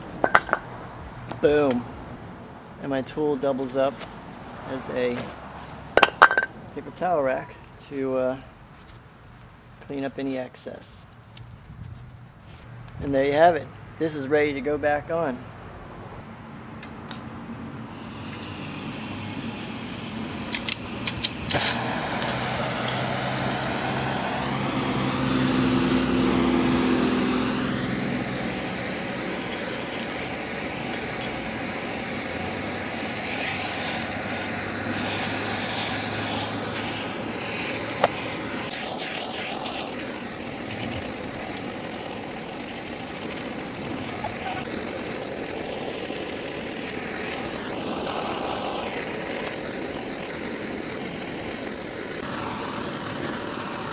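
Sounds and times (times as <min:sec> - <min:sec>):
blowtorch flame hissing: 0:17.8 - 0:53.9
blowtorch igniter clicking: 0:18.0 - 0:52.2
sharp click: 0:20.5 - 0:23.0.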